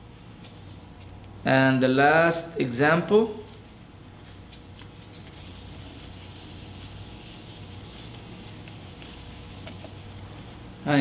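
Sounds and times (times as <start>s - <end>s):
eraser scrubbing whiteboard: 5.0s - 10.8s.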